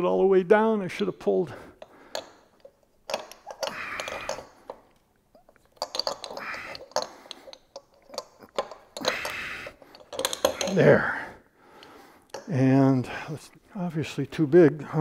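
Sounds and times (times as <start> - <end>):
light metal clicks and taps: 1.8 - 10.8, 11.8 - 12.5.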